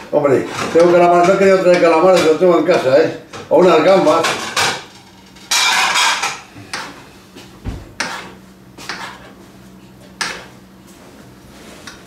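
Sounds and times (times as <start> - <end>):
utensil scraping frying pan: 4.1 - 7.0, 8.0 - 9.4.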